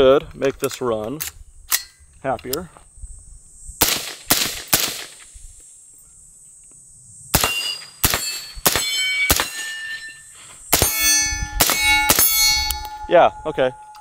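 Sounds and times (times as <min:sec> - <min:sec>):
suppressed rifle shots: 0:03.8 - 0:05.3
ringing steel target hit: 0:07.4 - 0:14.0.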